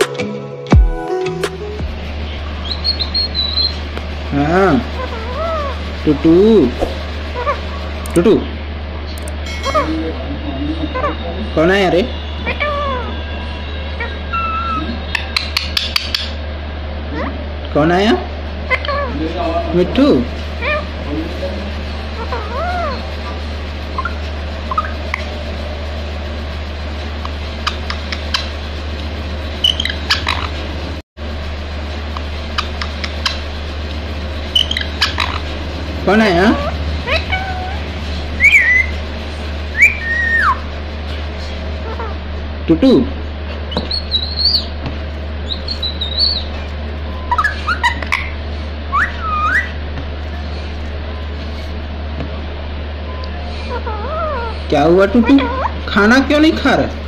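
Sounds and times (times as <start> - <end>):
steady low hum: 0.8 - 57.0
parakeet squeaking and chirping: 2.2 - 3.9, 4.8 - 6.1, 7.2 - 7.9, 12.4 - 16.4, 21.9 - 25.3, 27.3 - 28.6, 29.5 - 30.6, 32.5 - 33.5, 34.4 - 40.7, 41.8 - 42.2, 43.6 - 44.8, 45.4 - 50.7, 53.1 - 56.0.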